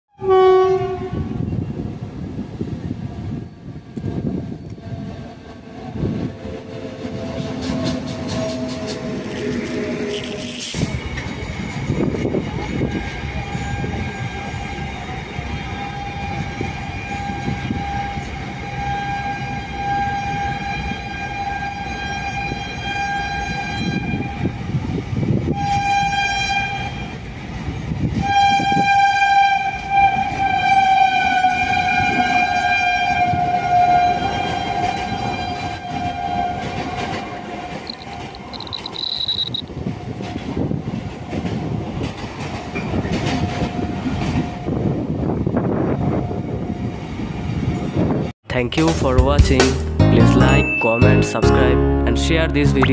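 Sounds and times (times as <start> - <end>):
train wheels rumbling on rails: 1.2 - 49.1
steady high-pitched tone: 37.9 - 39.7.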